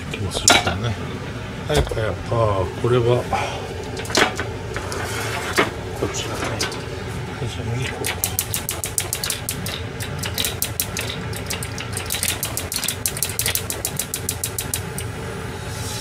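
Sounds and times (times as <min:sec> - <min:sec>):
gas hob igniter clicking: 0:08.0 - 0:15.2.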